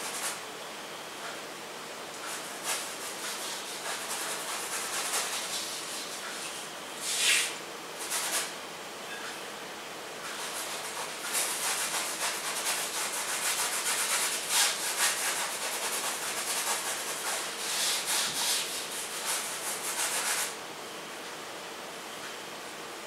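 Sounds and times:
paintbrush scrubbing on canvas: 0:02.3 - 0:08.5, 0:10.4 - 0:20.6.

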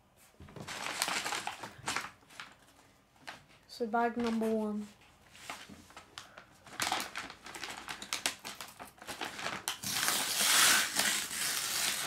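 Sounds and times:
paper bag crinkling and tearing: 0:00.6 - 0:02.6, 0:05.5 - 0:12.0.

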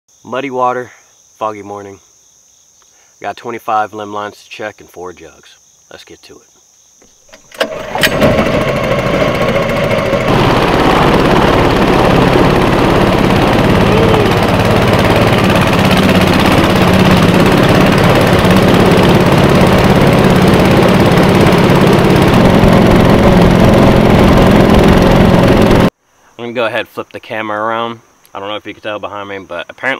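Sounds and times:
outboard motor running: 0:07.2 - 0:25.9.

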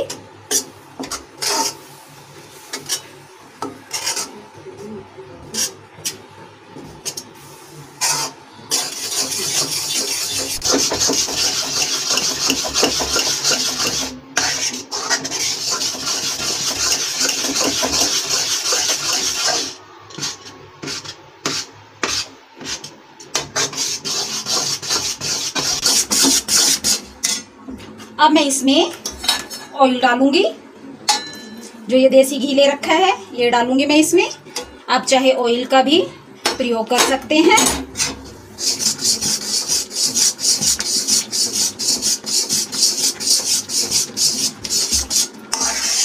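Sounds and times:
metal spoon scraping a pan: 0:00.5 - 0:01.9, 0:03.9 - 0:04.4, 0:08.0 - 0:21.2, 0:23.4 - 0:27.4, 0:37.6 - 0:46.0.

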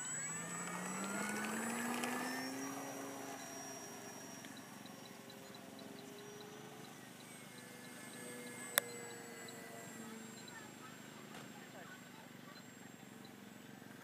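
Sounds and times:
model plane motor whining: 0:00.0 - 0:14.0.

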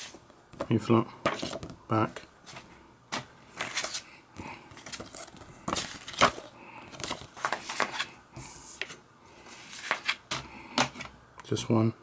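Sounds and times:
paper leaflet rustling: 0:02.4 - 0:04.1, 0:04.7 - 0:10.3.

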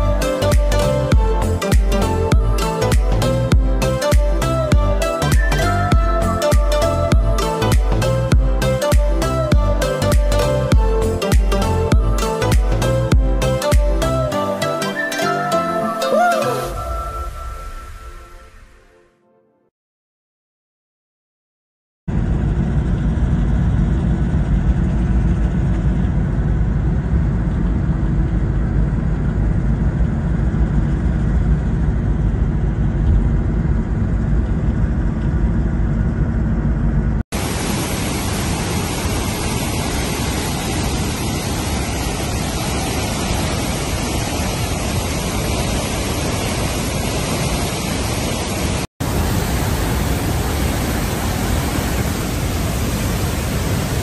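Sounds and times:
steady low rumble: 0:00.0 - 0:14.3, 0:22.1 - 0:54.0
waterfall roaring: 0:37.4 - 0:54.0.

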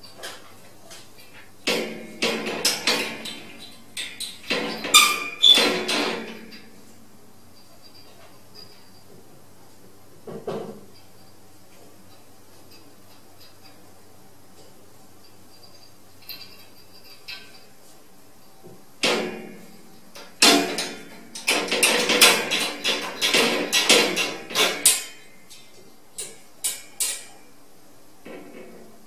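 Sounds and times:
wire cage door rattling: 0:01.6 - 0:06.8, 0:19.0 - 0:27.5.

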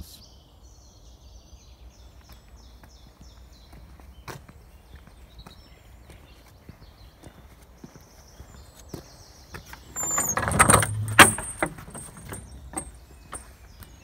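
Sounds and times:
latch clacking: 0:09.8 - 0:13.5
metal gate latch rattling: 0:09.8 - 0:13.6
high squeak: 0:10.0 - 0:12.9.

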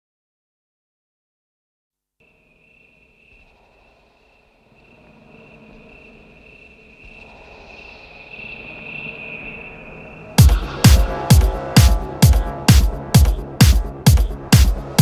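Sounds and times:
high-pitched whine: 0:02.2 - 0:15.0
low hum: 0:02.2 - 0:15.0
hiss: 0:03.0 - 0:12.6.

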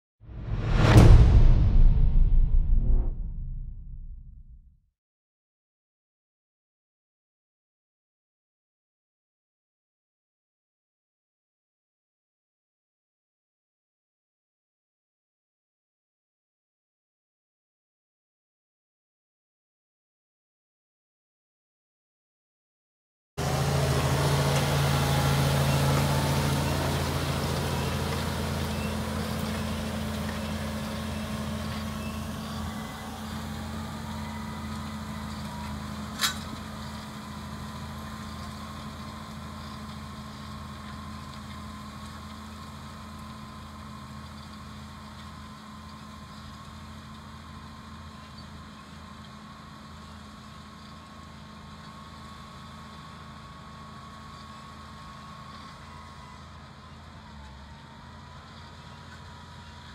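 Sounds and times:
tractor diesel engine running: 0:23.4 - 0:59.9.

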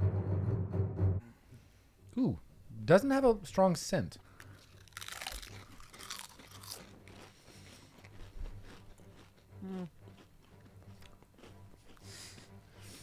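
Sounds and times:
people crunching crisps: 0:04.3 - 0:13.0.

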